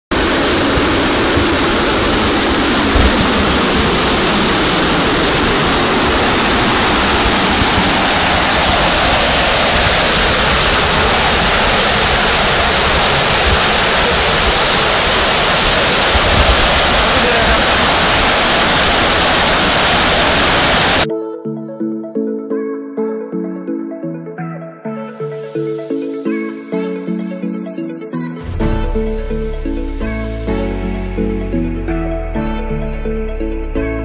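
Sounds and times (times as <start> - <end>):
river water rushing: 0.1 - 21.0.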